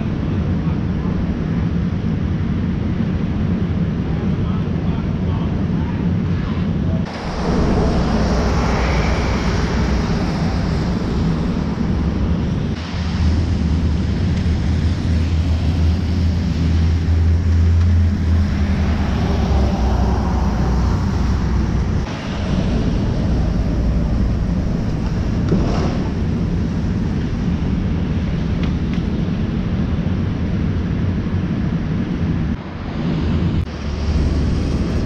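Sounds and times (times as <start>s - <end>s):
traffic rumble: 0.0s - 35.0s
wind buffeting microphone: 0.0s - 35.0s.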